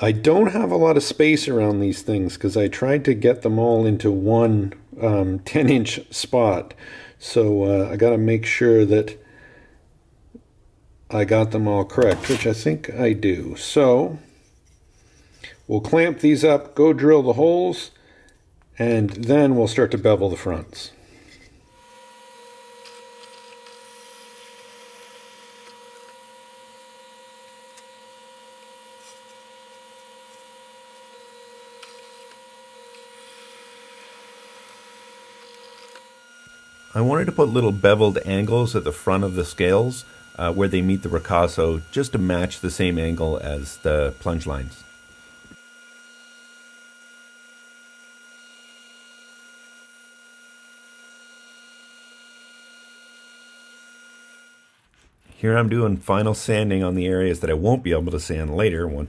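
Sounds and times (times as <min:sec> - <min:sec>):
drill press motor humming: 0:21.3 - 0:54.8.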